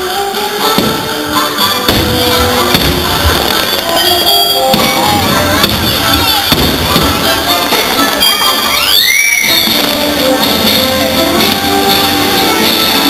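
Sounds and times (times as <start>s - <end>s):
music soundtrack: 0.0s - 13.0s
fireworks bangs and crackles: 0.5s - 13.0s
rising firework whistle: 7.9s - 10.0s.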